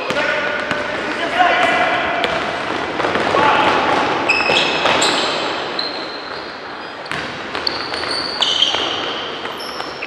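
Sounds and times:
ball bouncing: 0:00.0 - 0:05.4, 0:06.2 - 0:10.0
hum of players and spectators: 0:00.0 - 0:10.0
sneakers squeaking on court: 0:03.9 - 0:10.0.

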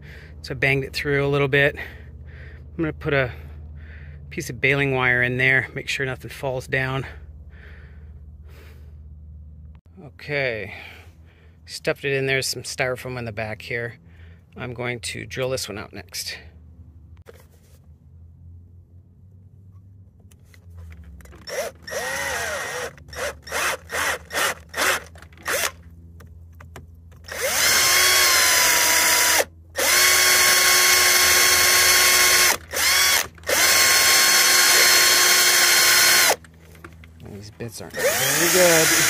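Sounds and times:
cordless drill whining: 0:21.2 - 0:25.8, 0:27.2 - 0:37.0, 0:37.9 - 0:39.0.

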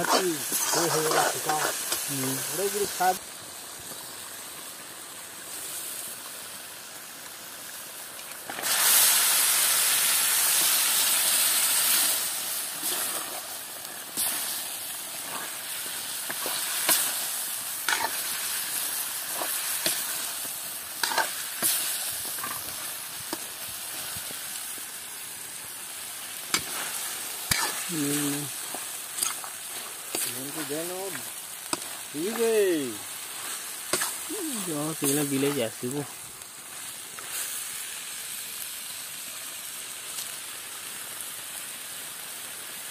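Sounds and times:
meat sizzling in a hot pan: 0:00.0 - 0:42.9
metal ladle scraping a pan: 0:17.9 - 0:18.3, 0:21.0 - 0:21.8, 0:26.5 - 0:27.9.

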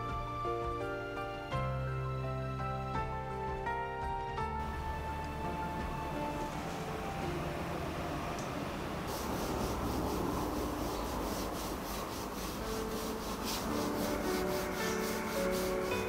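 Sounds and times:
rhythmic rubbing strokes: 0:09.0 - 0:16.0.

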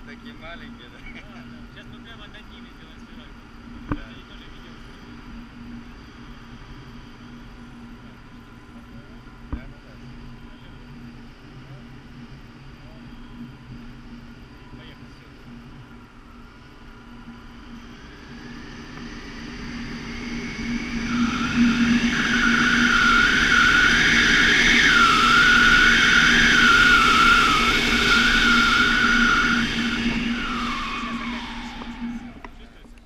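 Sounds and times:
wavering high whistle: 0:12.4 - 0:32.8
wind rushing over microphone: 0:15.6 - 0:32.8.

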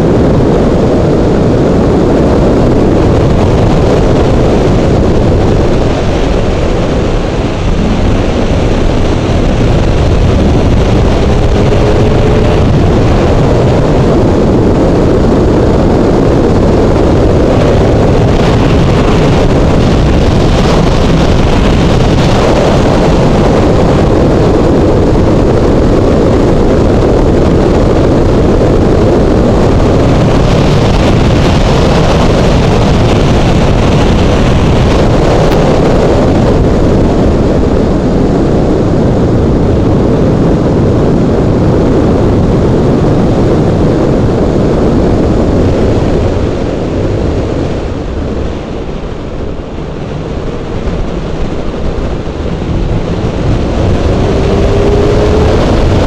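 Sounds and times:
motorcycle engine cruising: 0:00.0 - 0:38.0, 0:50.0 - 0:56.0
wind rush on microphone: 0:00.0 - 0:56.0.

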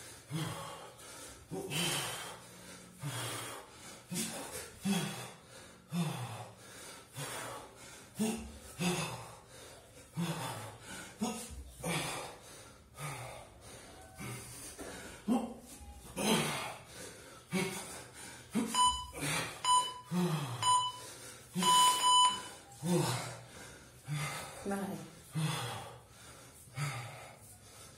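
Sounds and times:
man breathing hard: 0:00.0 - 0:27.9
electronic timer beeps: 0:18.6 - 0:22.7.

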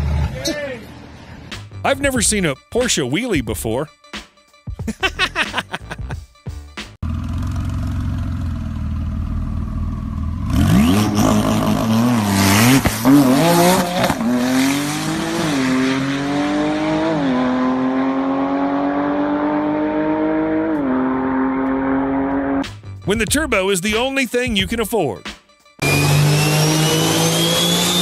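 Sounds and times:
car engine rumbling: 0:07.0 - 0:15.4
car accelerating through gears: 0:10.4 - 0:22.6, 0:25.8 - 0:28.0.

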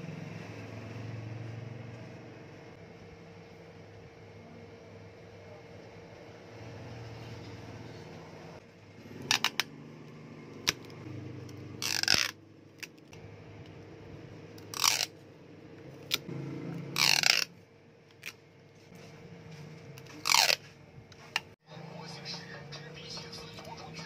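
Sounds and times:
adhesive tape ripping: 0:11.8 - 0:13.1, 0:14.6 - 0:15.1, 0:17.0 - 0:17.5, 0:20.0 - 0:20.6.

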